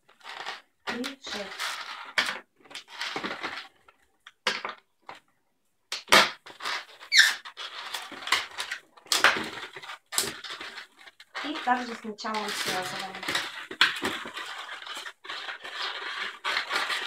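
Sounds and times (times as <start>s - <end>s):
balloons rubbing and squeaking: 0.0s - 3.9s, 6.1s - 17.0s
balloon squeal: 6.6s - 8.0s.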